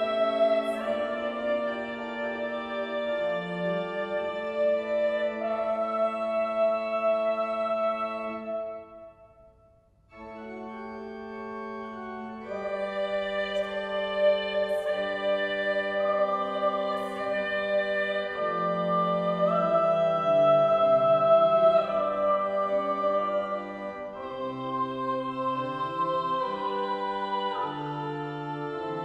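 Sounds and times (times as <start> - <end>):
pipe organ chords: 0.0 - 9.3, 10.1 - 29.0.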